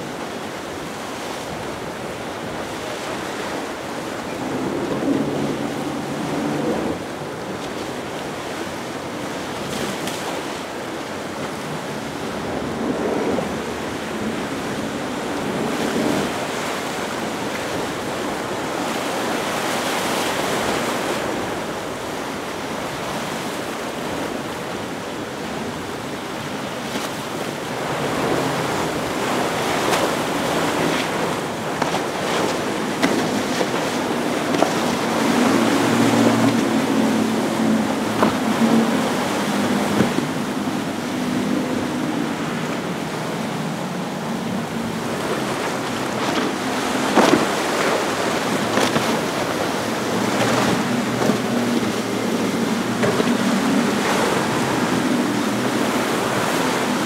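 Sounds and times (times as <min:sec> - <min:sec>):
choppy water and wake rushing: 0:00.0 - 0:57.0
low engine drone: 0:04.0 - 0:07.5.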